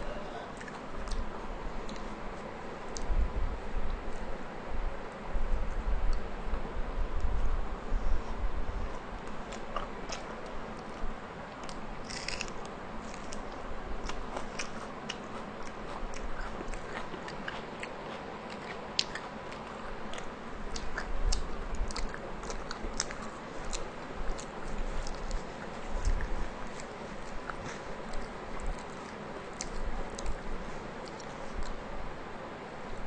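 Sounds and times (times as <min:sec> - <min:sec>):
close chewing mouth smacks: 0:09.3 - 0:31.8.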